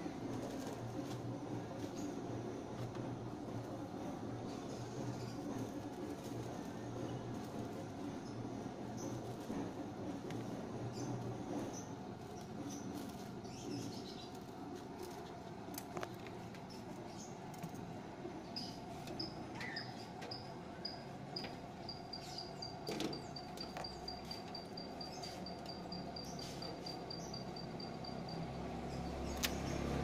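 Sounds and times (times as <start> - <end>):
steady low hum: 0.0 - 30.0
high repeating chirp: 19.2 - 28.5.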